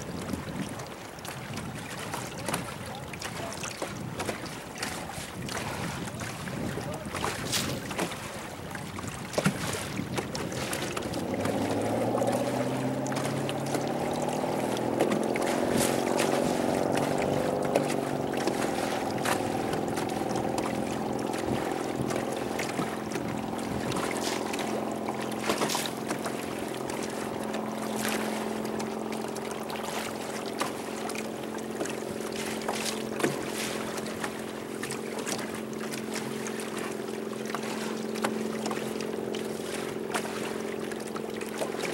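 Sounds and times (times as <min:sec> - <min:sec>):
wind on microphone: 0:00.0 - 0:29.0
boat motor running: 0:00.0 - 0:41.9
hull slapping through water: 0:00.0 - 0:41.9.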